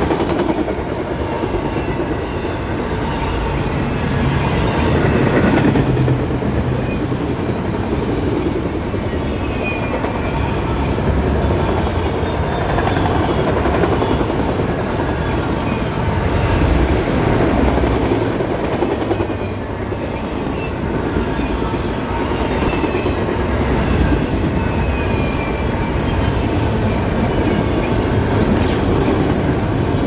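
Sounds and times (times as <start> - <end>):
train wheels rumbling on rails: 0.0 - 30.0
wheels squealing: 26.9 - 30.0.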